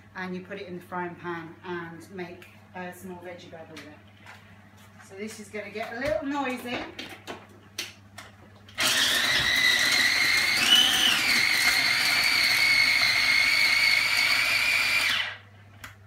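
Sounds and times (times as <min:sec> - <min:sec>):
electric chopper motor whirring: 0:08.8 - 0:15.4.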